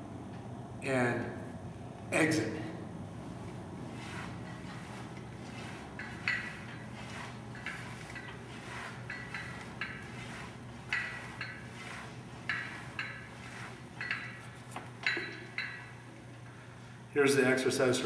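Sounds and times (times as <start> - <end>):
low hum: 0.0 - 17.1
metal clinking of gym machine: 4.0 - 16.5.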